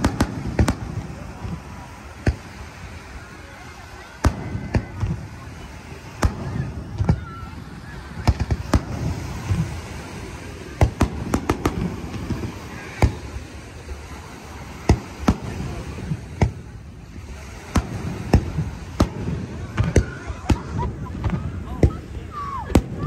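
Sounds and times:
firework shells bursting: 0:10.8 - 0:13.4.

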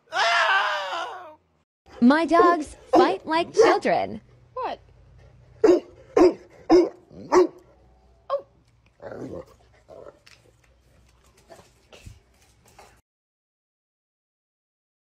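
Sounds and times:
large dog barking: 0:02.4 - 0:03.9, 0:05.6 - 0:10.2.

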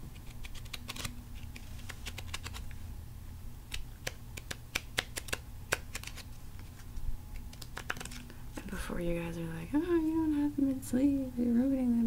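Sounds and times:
low recording hum: 0:00.0 - 0:12.0
trading cards shuffling: 0:00.1 - 0:02.8, 0:03.7 - 0:08.4.

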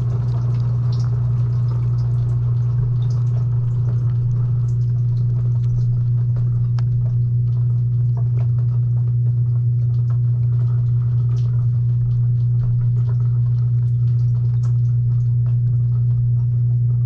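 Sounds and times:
dishwasher pump motor humming: 0:00.0 - 0:17.0.

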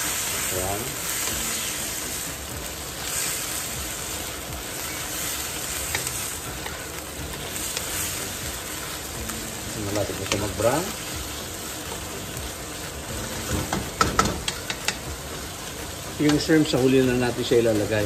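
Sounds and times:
meat sizzling in a wok: 0:00.0 - 0:18.0
spatula clicking against pan: 0:14.0 - 0:15.0.

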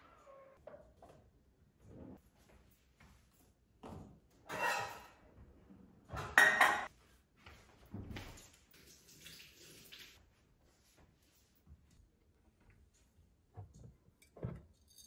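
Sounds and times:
kitchenware knocking and clattering: 0:06.1 - 0:06.9.

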